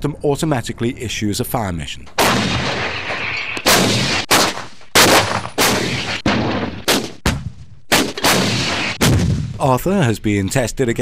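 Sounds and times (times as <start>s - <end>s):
artillery guns firing: 2.2s - 9.6s.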